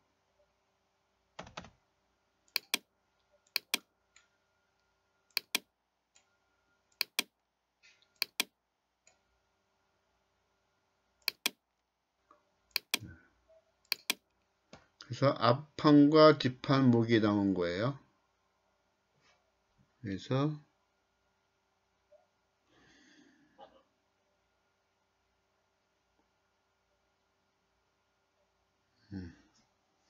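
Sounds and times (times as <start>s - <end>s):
computer mouse clicking: 2.5s - 2.9s, 3.5s - 4.3s, 5.3s - 6.3s, 7.0s - 7.3s, 8.1s - 8.5s, 11.2s - 11.6s, 12.7s - 13.1s, 13.9s - 14.3s.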